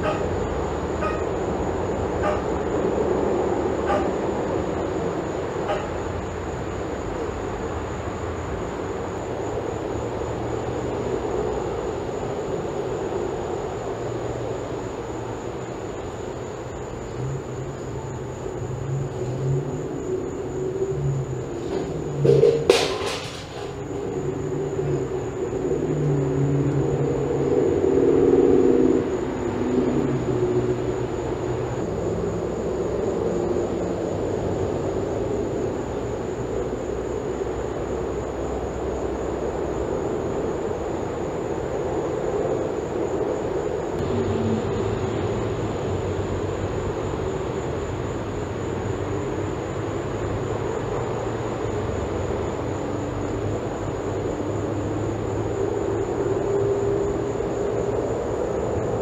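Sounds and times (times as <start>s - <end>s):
low mechanical drone: 0.0s - 38.7s, 39.4s - 59.0s.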